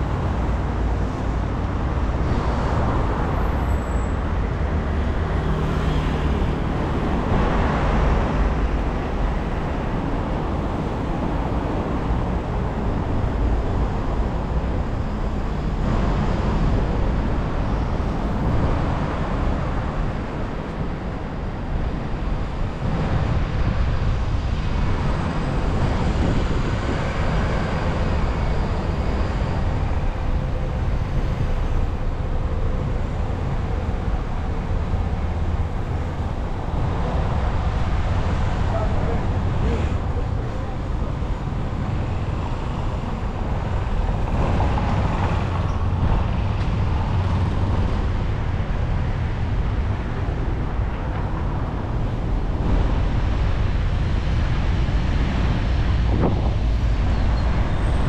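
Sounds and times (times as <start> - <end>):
road traffic rushing: 0.0 - 58.0
vehicles passing: 0.0 - 58.0.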